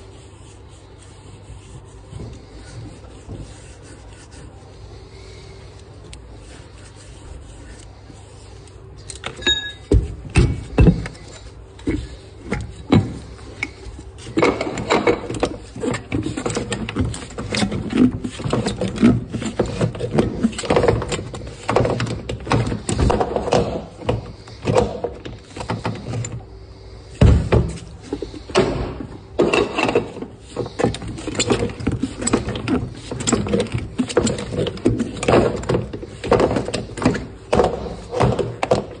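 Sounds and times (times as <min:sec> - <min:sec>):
rubber tyre bead scraping: 0:09.8 - 0:39.0.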